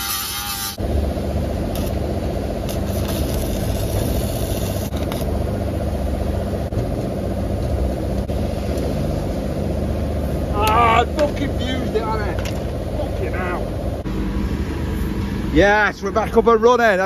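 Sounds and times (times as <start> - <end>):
stick welder burning a rod: 0.0 - 1.0, 1.6 - 5.4
low machine hum: 0.0 - 17.0.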